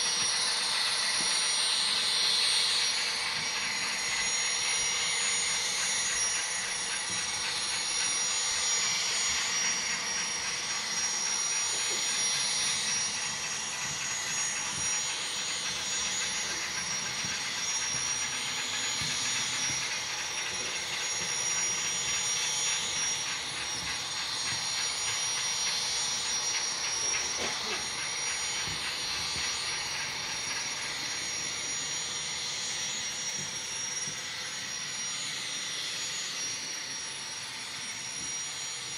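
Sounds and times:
model train whirring on rails: 0.0 - 38.9
steady high-pitched tone: 0.0 - 38.9.

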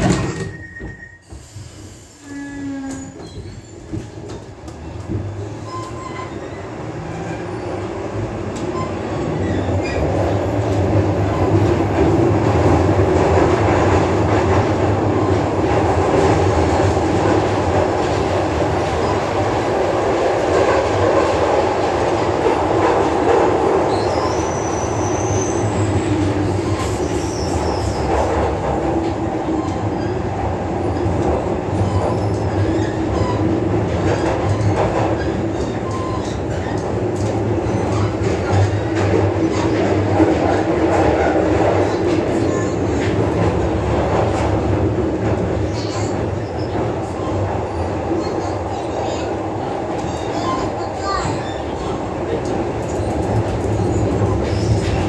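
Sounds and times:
subway train rumble and rattle: 0.0 - 55.0
short high squeal: 0.4 - 3.8.

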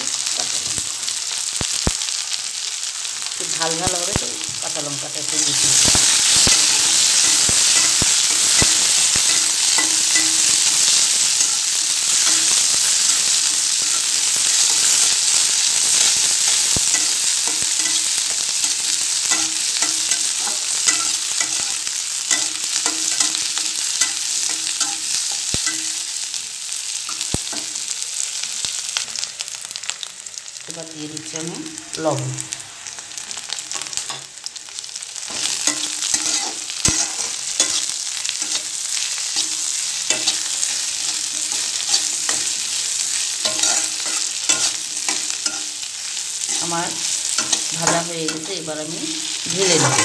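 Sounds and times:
vegetables sizzling in hot oil: 0.0 - 50.0
steel spatula scraping a pan: 5.4 - 26.0, 35.3 - 48.7, 49.5 - 50.0.

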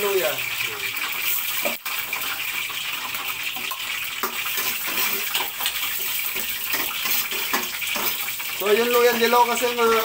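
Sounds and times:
sizzling in hot oil: 0.0 - 10.0
metal ladle scraping and clinking: 4.5 - 8.4.

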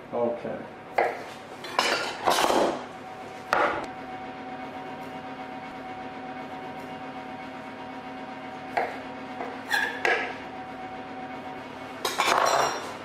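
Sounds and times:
steady background hum: 0.0 - 13.0
knocks and clinks on worktop: 12.0 - 12.9.

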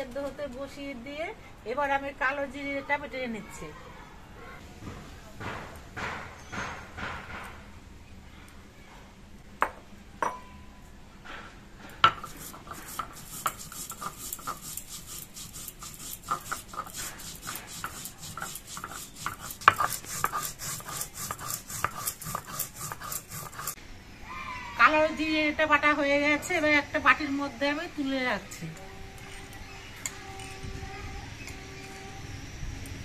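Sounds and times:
stone roller grinding seeds: 12.0 - 23.8, 28.5 - 33.0.

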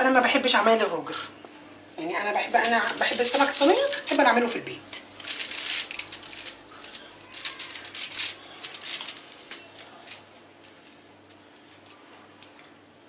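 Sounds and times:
aluminium foil crinkling: 2.4 - 12.8.

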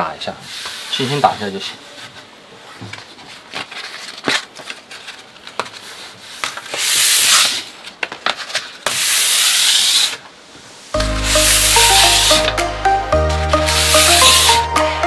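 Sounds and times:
sandpaper rasping strokes: 6.7 - 7.6, 8.9 - 10.2, 11.2 - 12.6, 13.3 - 14.8
sandpaper scratching: 6.7 - 7.7, 8.9 - 10.2, 11.2 - 12.6, 13.3 - 14.7.

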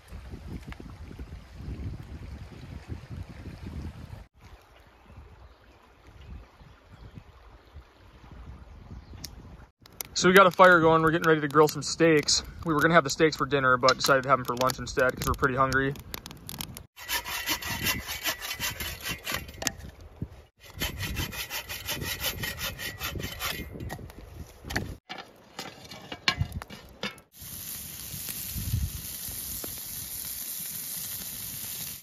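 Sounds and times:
saw cutting through wood: 17.0 - 19.7, 20.6 - 23.8
steady hiss: 27.3 - 32.0.

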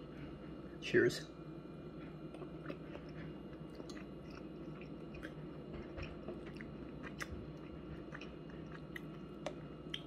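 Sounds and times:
person chewing: 2.0 - 10.0.

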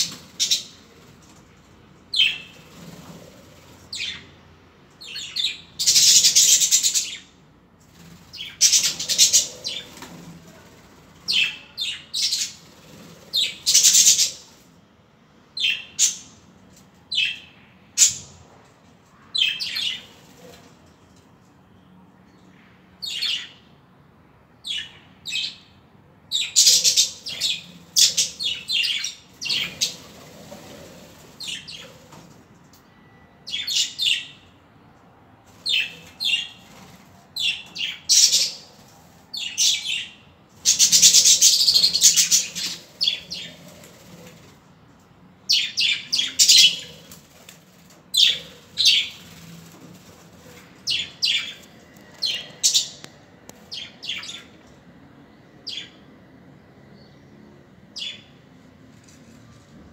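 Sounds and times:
budgerigars chirping and chattering: 8.4 - 10.0, 39.5 - 43.6, 45.6 - 47.2, 48.2 - 49.3.

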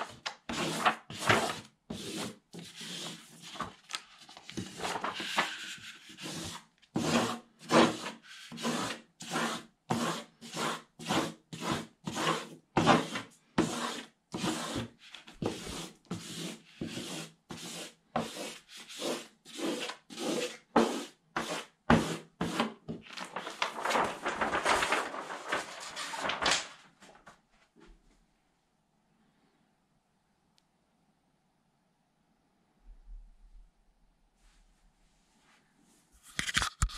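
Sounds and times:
plastic squeegee scraping paper: 0.0 - 26.8.

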